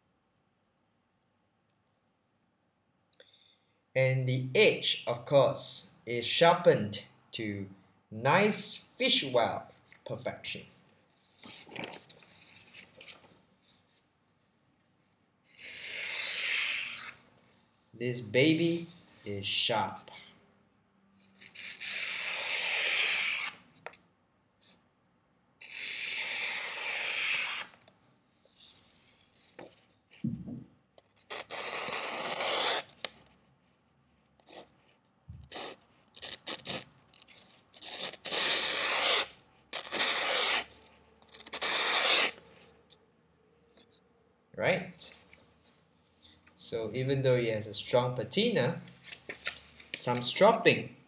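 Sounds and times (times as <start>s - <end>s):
knife slicing paper: 21.4s - 23.6s, 25.6s - 27.7s, 31.2s - 33.0s, 35.5s - 40.7s, 41.3s - 42.4s
short paper scratches: 31.2s - 42.4s.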